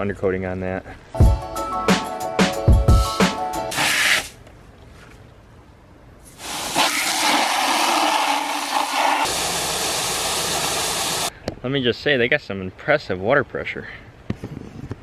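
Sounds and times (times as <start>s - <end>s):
water jet splashing into bucket: 6.4s - 11.3s.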